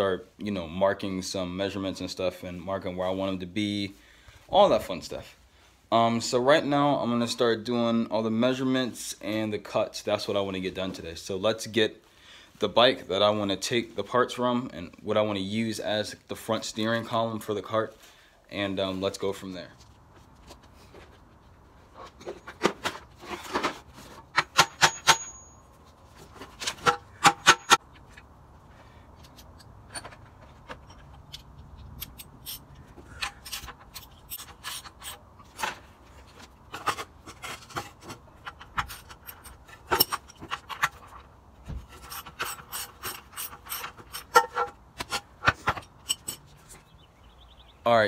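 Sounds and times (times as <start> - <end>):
short metallic ring: 24.6 - 25.8
metallic tool clicks: 31.3 - 32.7.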